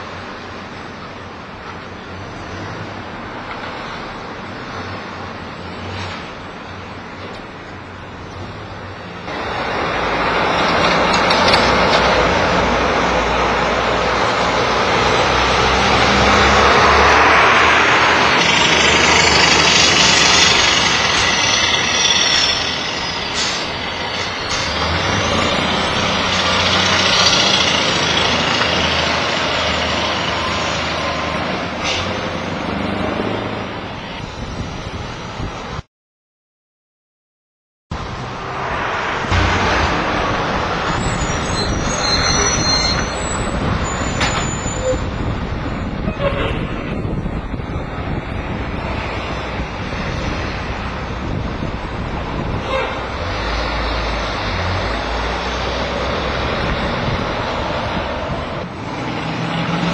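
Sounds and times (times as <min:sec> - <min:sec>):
car traffic: 0:00.0 - 0:35.8, 0:37.9 - 0:59.9
tyres hissing on road: 0:09.1 - 0:34.2
high squeal falling in pitch: 0:40.9 - 0:45.1.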